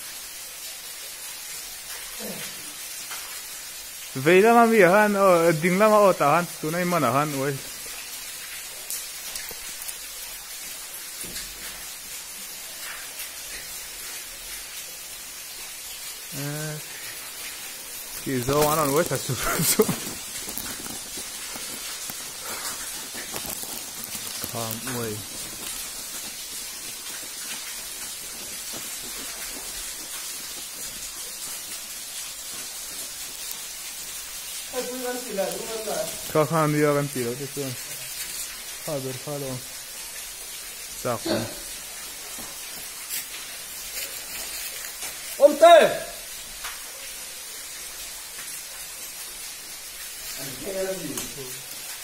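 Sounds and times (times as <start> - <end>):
waterfall rushing: 15.8 - 39.7, 40.6 - 42.4, 50.3 - 52.0.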